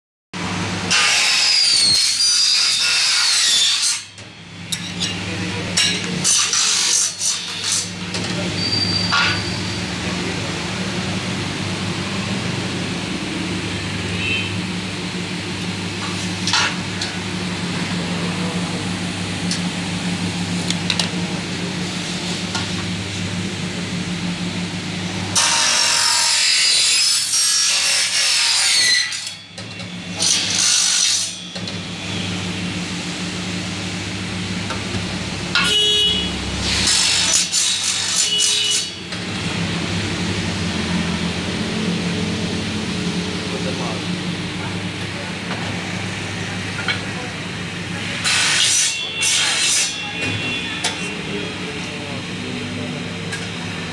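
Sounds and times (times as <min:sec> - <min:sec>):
cutting saw humming: 0:00.4 - 0:53.9
saw blade screeching through metal: 0:00.9 - 0:05.2, 0:05.8 - 0:10.0, 0:25.4 - 0:32.3, 0:35.5 - 0:39.1, 0:48.2 - 0:51.2.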